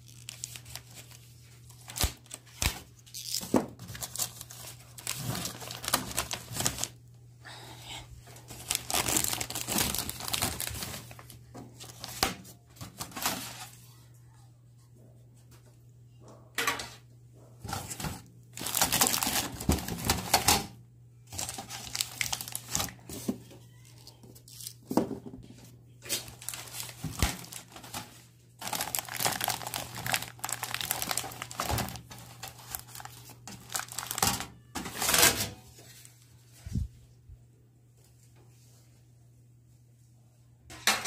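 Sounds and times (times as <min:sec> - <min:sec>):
plastic wrap crinkling: 0:00.0 - 0:07.0, 0:08.4 - 0:13.8, 0:17.7 - 0:20.6, 0:21.3 - 0:25.0, 0:26.0 - 0:35.1
faint low hum: 0:00.0 - 0:41.0.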